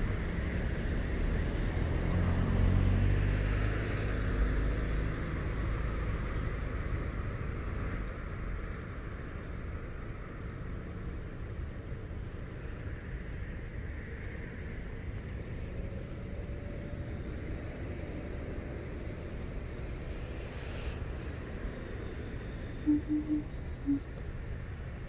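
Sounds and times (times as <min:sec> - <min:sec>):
passing vehicle engine: 0:00.0 - 0:08.6, 0:16.0 - 0:25.0.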